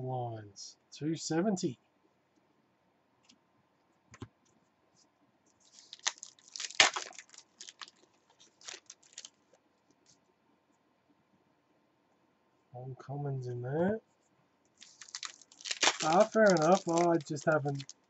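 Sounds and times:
cards rustling and snapping: 0:05.6 - 0:09.4, 0:14.8 - 0:18.0.

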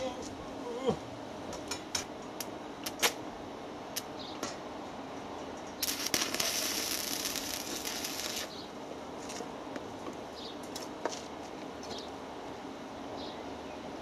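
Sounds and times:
welding arc crackling: 0:05.8 - 0:08.6.

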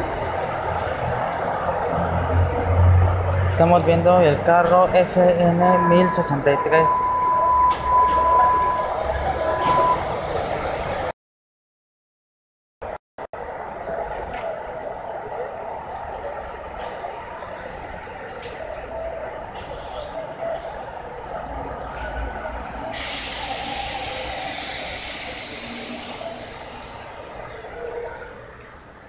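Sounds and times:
stopped train steady din: 0:00.0 - 0:11.1, 0:13.4 - 0:29.0
air hiss from brakes: 0:19.6 - 0:20.8, 0:22.9 - 0:27.8.

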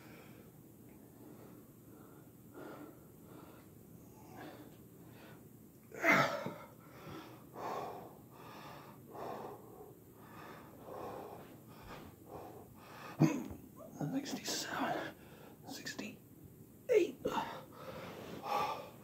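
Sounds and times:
man breathing hard: 0:00.0 - 0:05.5, 0:06.2 - 0:13.2, 0:17.3 - 0:19.0
man groaning: 0:06.0 - 0:06.6.

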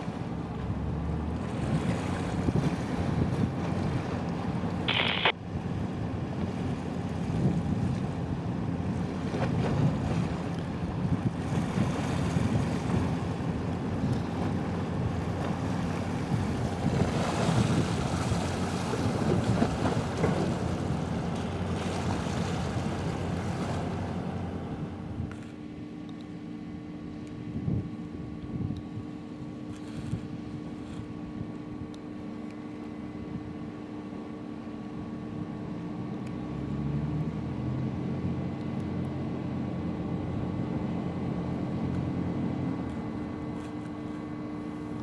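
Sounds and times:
water sounds: 0:00.0 - 0:26.4
low rumble of a ship: 0:00.0 - 0:45.0.

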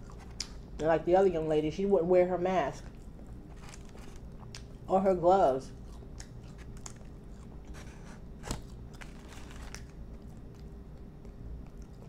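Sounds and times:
chewing crispy food: 0:00.0 - 0:00.8, 0:02.7 - 0:04.9, 0:05.6 - 0:12.0.

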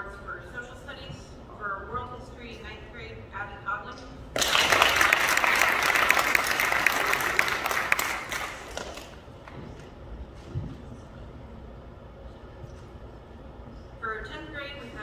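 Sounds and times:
audience applauding: 0:04.4 - 0:09.2.

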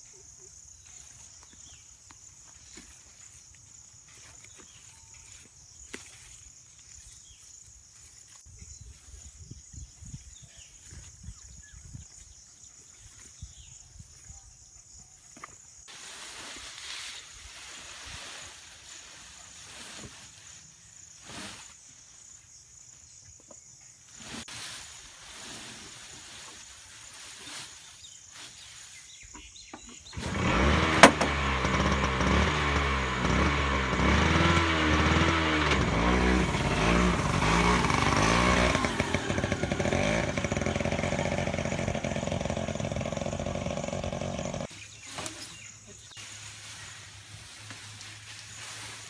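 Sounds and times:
grass bundles rustling: 0:15.9 - 0:22.3, 0:24.1 - 0:29.2, 0:44.5 - 0:49.0
small engine starting and running: 0:30.0 - 0:44.8.

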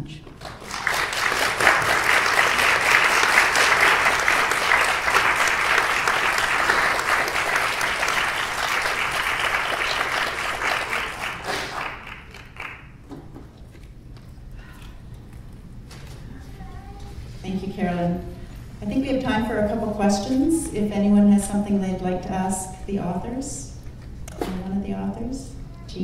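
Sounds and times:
audience applauding: 0:00.3 - 0:13.0.

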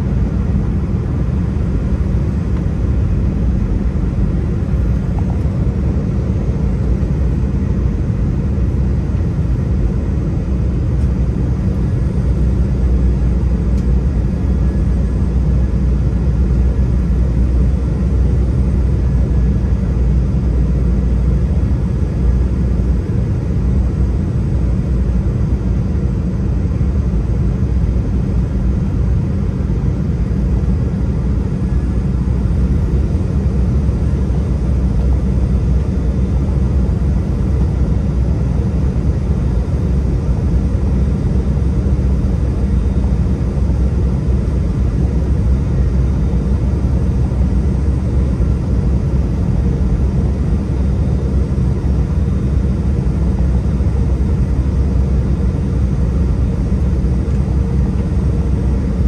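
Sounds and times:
airliner cabin rumble: 0:00.0 - 0:59.0.

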